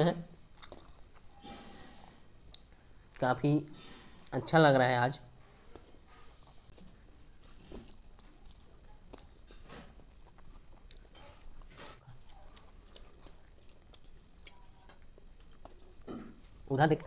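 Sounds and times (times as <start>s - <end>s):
people chewing: 0.4s - 3.2s, 5.4s - 16.7s.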